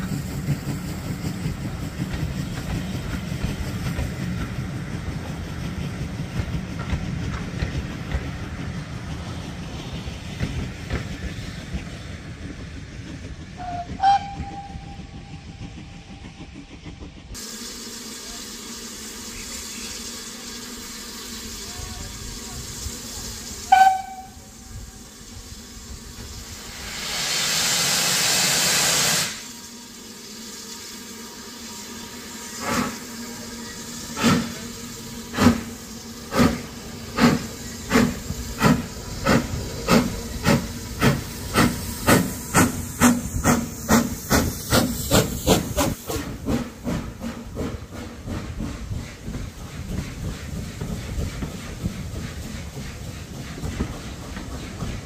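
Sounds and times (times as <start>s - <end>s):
locomotive exhaust chuffs: 0.0s - 55.0s
steam hiss: 0.0s - 55.0s
steam locomotive whistle: 13.6s - 15.5s, 23.6s - 25.0s.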